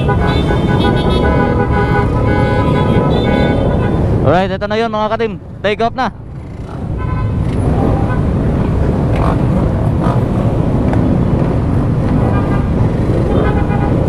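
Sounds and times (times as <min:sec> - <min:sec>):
motorcycle engines revving: 0:05.7 - 0:14.0.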